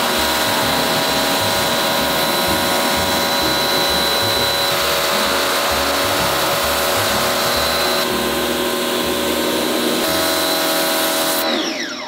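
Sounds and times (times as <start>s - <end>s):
water jet hissing on plastic: 0.0s - 11.5s
motor whine winding down: 0.0s - 12.0s
pressure washer running: 0.0s - 12.0s.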